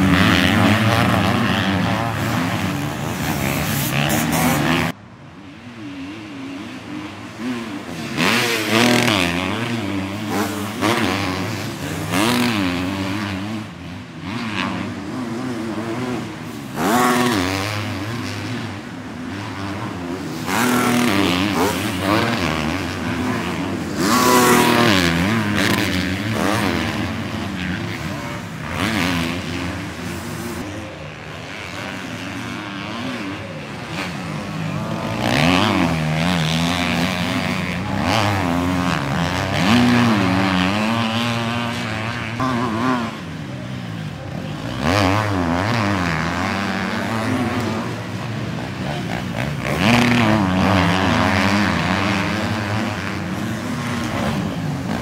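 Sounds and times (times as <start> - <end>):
motocross bike engines revving: 0.0 - 55.0.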